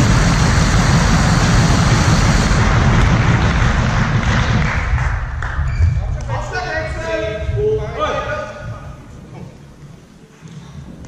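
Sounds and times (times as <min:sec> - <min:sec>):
deep rumble: 0:00.0 - 0:10.0
spectators cheering and clapping: 0:02.0 - 0:05.7.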